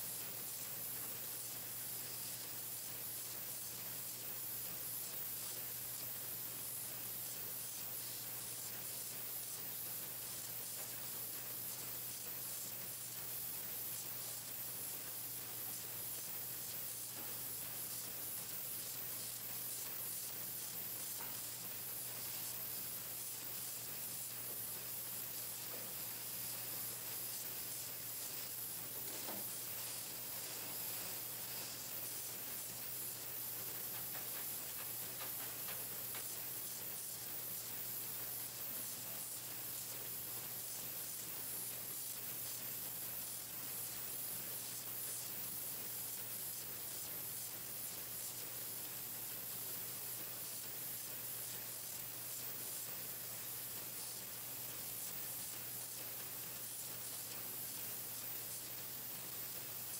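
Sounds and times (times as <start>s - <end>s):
machine humming and hissing: 0.0s - 59.9s
faint ticks: 17.0s - 22.6s, 28.4s - 37.8s.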